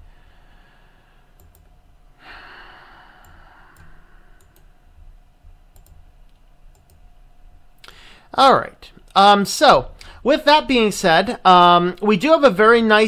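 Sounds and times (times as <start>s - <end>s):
computer mouse clicks: 1.4s - 1.7s, 3.2s - 4.7s, 5.7s - 7.0s
person sighing: 2.2s - 4.4s.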